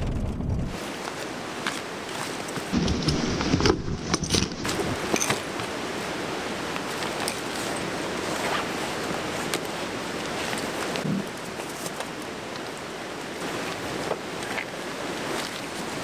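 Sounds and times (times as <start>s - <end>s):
steady rushing noise: 0.0s - 16.0s
backpack clicks and rustles: 1.1s - 5.7s.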